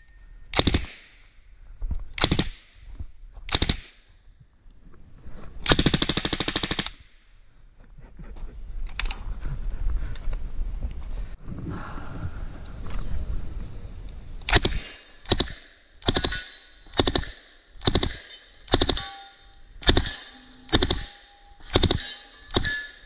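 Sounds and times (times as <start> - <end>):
submachine gun bursts: 14.5 - 19.2, 19.8 - 22.9.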